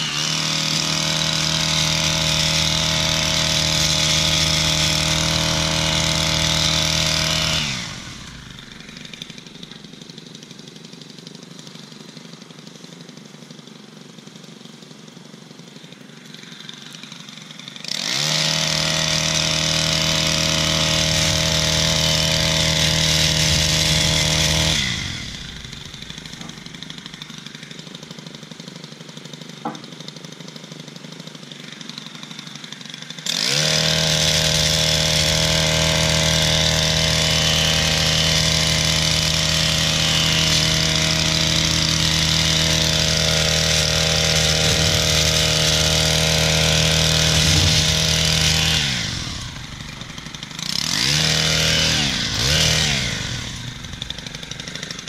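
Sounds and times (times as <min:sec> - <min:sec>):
hedge trimmer engine revving: 0:00.0 - 0:55.0.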